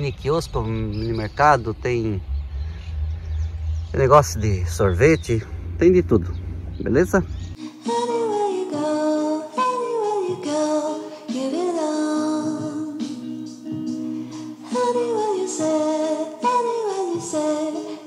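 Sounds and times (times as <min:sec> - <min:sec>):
song with singing voice: 0:07.6 - 0:18.0.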